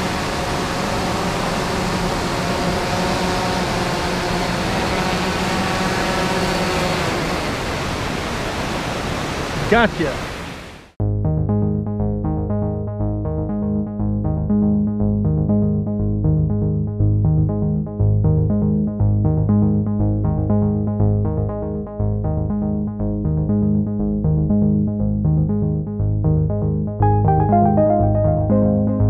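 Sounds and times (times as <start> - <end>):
synthesizer music with pulsing rhythm: 11.0 - 29.0.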